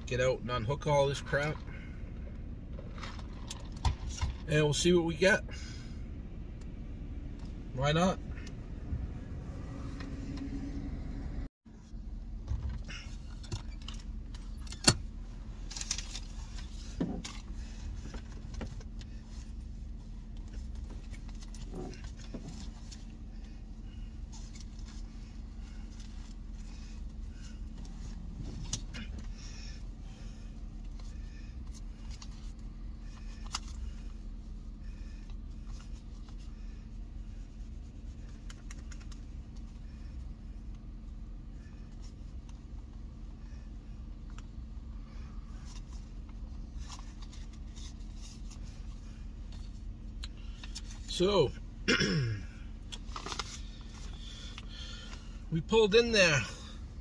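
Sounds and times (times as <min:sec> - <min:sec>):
clicks and rustles of handling: 0:52.8 - 0:55.3.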